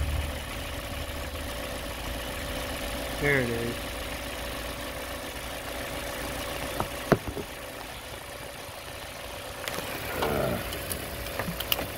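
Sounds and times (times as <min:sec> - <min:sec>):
car engine idling: 0:00.0 - 0:11.9
sharp knocks: 0:06.8 - 0:07.5.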